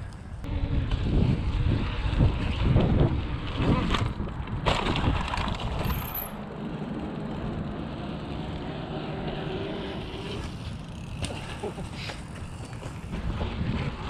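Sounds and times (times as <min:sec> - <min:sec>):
wind buffeting microphone: 0:00.0 - 0:06.0, 0:12.2 - 0:14.0
bike rolling on concrete: 0:00.0 - 0:14.0.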